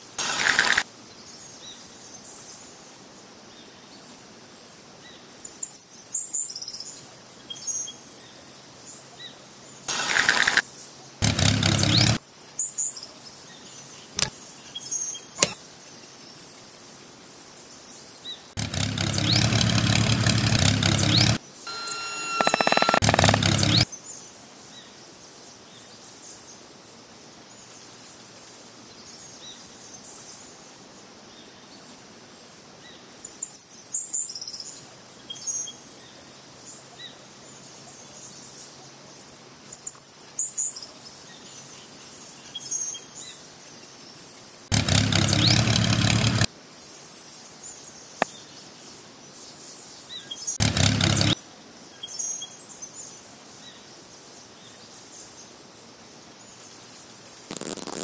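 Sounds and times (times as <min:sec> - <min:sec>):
bursts of broad noise: 0:00.2 - 0:00.8, 0:09.9 - 0:10.6, 0:11.2 - 0:12.2, 0:18.6 - 0:23.9, 0:57.5 - 0:58.0
birds chirping: 0:11.2 - 0:12.2, 0:18.6 - 0:24.0, 0:44.8 - 0:46.4.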